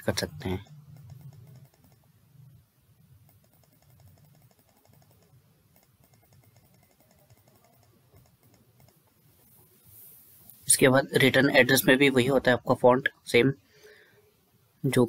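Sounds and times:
computer mouse clicking: 0.7 - 2.6, 3.2 - 9.5.

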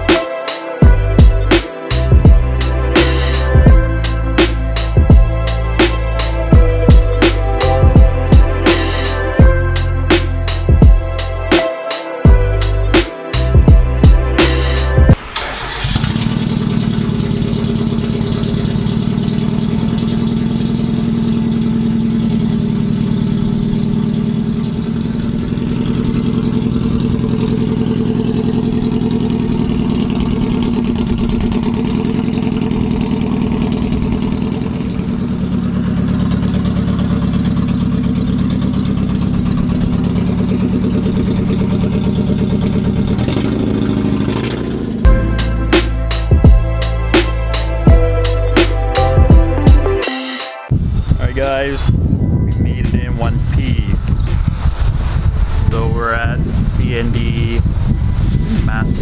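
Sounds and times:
loud car engine idling: 14.7 - 49.9.

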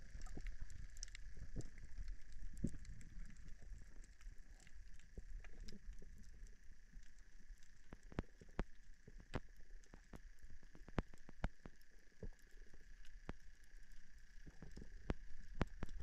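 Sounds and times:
low underwater rumble: 0.0 - 16.0
underwater clicks and crackles: 0.0 - 16.0.

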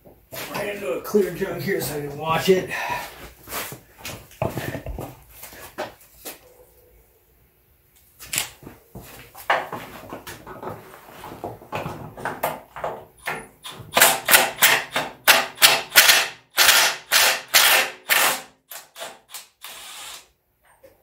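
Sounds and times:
cordless power wrench bursts: 13.6 - 20.3.

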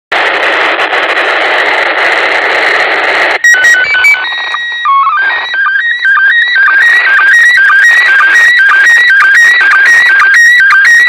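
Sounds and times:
radio static hiss: 0.1 - 5.7
fast rhythmic signal warbling: 3.3 - 11.0
stepped beeps and held tone: 3.4 - 11.0.

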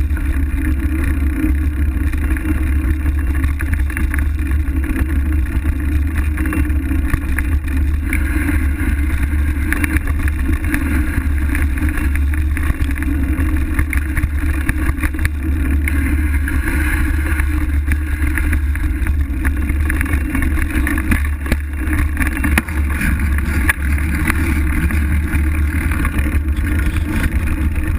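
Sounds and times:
bicycle tyre humming on dirt: 0.0 - 27.9
wind buffeting microphone: 14.9 - 27.9.

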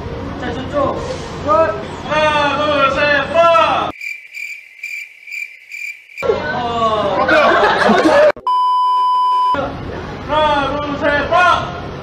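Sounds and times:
crickets chirping: 3.5 - 6.3
person laughing: 7.2 - 8.4
steady beep tone: 8.4 - 9.6.

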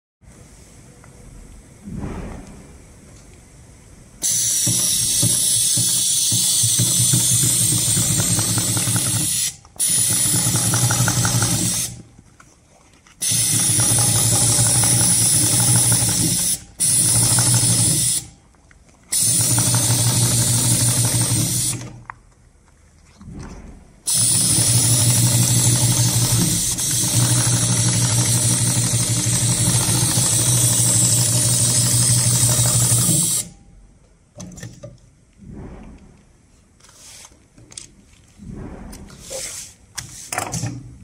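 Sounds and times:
air hissing from nozzle: 4.2 - 6.6
sewing machine stitching: 4.3 - 12.0, 13.2 - 18.2, 19.2 - 22.0, 24.1 - 33.5.

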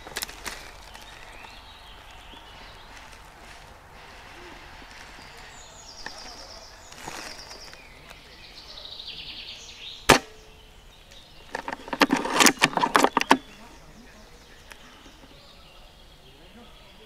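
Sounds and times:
airsoft rifle shot: 10.1 - 10.5
clicks and rattles: 11.5 - 13.4.

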